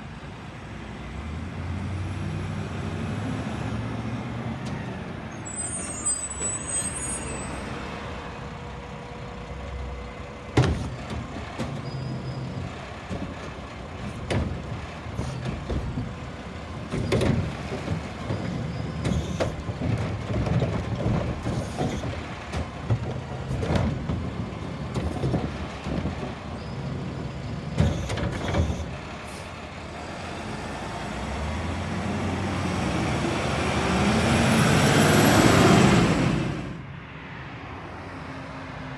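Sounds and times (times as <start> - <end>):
cart clunking and rattling: 10.4 - 29.2.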